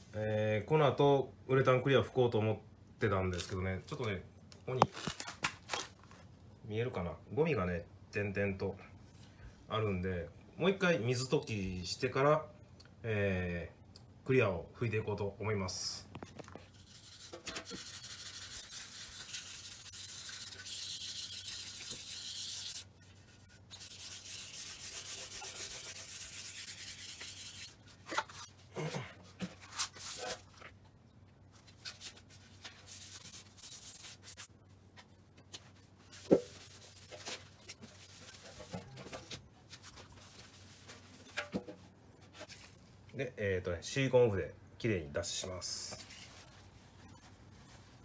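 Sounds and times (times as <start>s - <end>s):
hand sanding metal with sandpaper: 16.7s - 27.8s, 32.0s - 34.5s.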